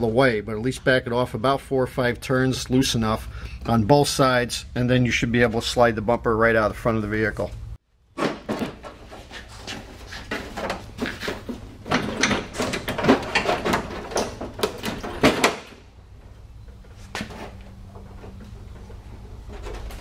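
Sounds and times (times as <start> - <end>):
car bumper knocking and scraping: 8.1 - 15.9.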